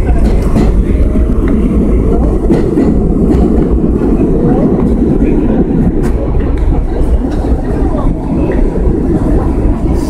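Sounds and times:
train wheels rumbling on rail: 0:00.0 - 0:10.0.

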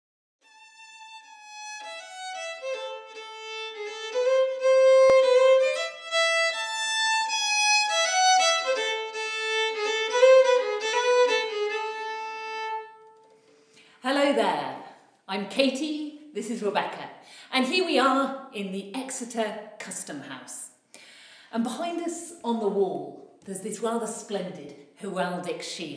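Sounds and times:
solo violin melody: 0:00.4 - 0:13.6.

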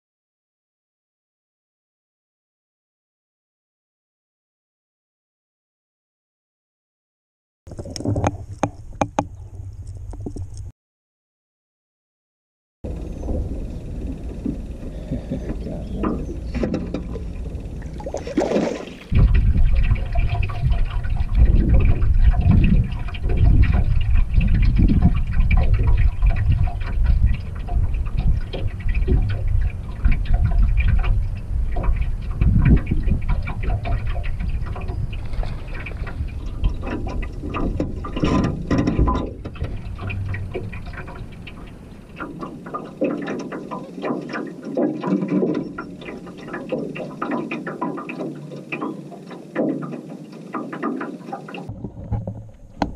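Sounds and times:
wind buffeting microphone: 0:12.9 - 0:44.3
water lapping against hull: 0:12.9 - 0:52.9.

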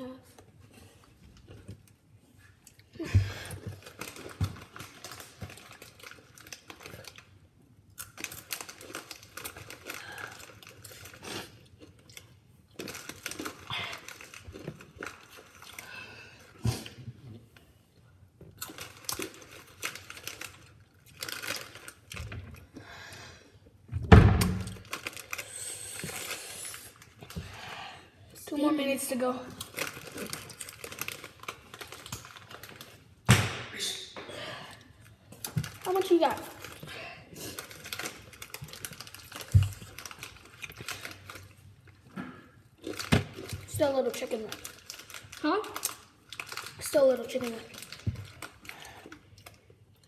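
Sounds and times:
snack bag crinkling: 0:03.5 - 0:17.0, 0:18.5 - 0:22.7, 0:24.5 - 0:27.5, 0:29.5 - 0:33.2, 0:35.0 - 0:50.0.

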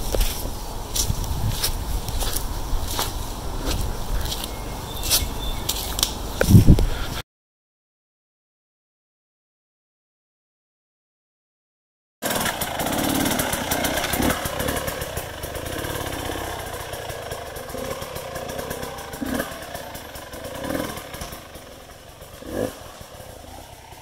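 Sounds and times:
dirt bike engine revving: 0:00.0 - 0:06.7, 0:12.2 - 0:24.0.

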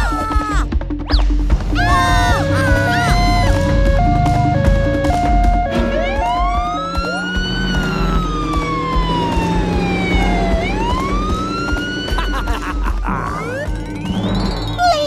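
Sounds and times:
siren wailing: 0:01.8 - 0:14.2
two-tone siren: 0:02.1 - 0:12.2.

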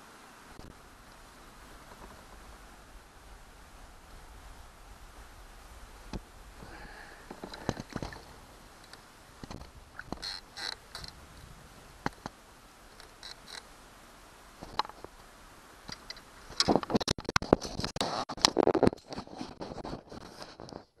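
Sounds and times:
small water splashes: 0:06.5 - 0:11.2.

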